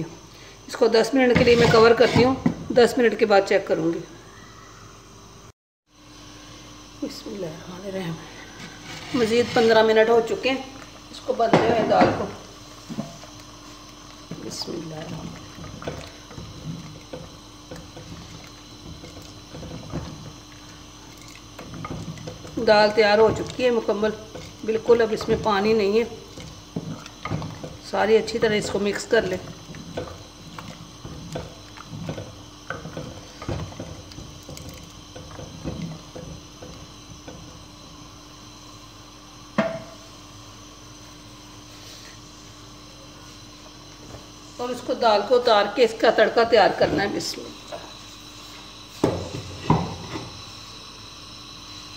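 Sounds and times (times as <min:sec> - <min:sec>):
wooden spoon stirring in clay pot: 0:01.3 - 0:02.8, 0:08.4 - 0:10.2, 0:12.3 - 0:38.2.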